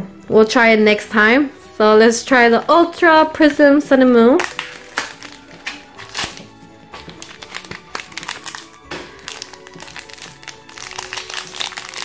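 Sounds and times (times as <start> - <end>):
background music: 0.0 - 12.0
foil wrapper crinkling and tearing: 4.4 - 12.0.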